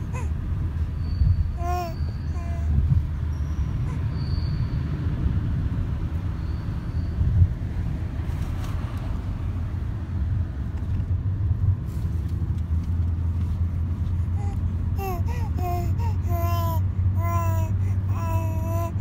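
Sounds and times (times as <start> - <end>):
infant cooing and babbling: 0.0 - 0.4, 1.6 - 3.0, 14.3 - 19.0
car road and engine rumble: 0.0 - 19.0.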